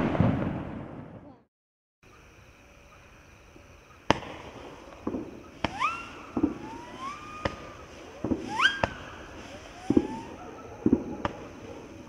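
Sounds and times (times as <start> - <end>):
firework launch thumps: 4.1 - 11.7
rising firework whines: 4.1 - 12.0.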